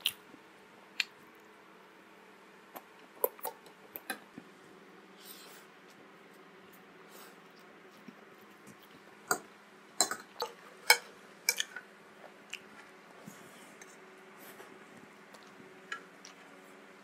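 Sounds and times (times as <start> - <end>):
wet eating clicks and smacks: 0.9 - 1.6.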